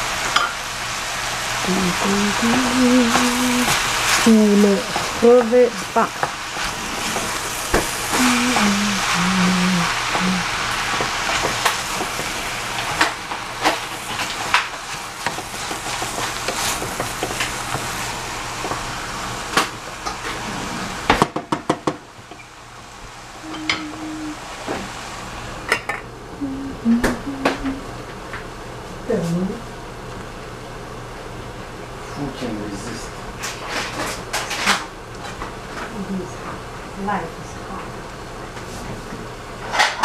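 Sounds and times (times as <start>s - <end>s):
vegetables sizzling in a pan: 0.0s - 28.0s.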